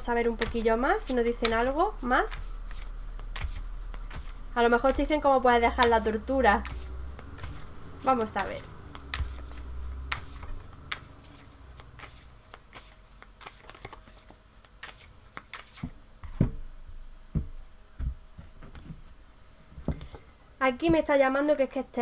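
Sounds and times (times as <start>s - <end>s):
cards being shuffled: 0.2s - 16.0s.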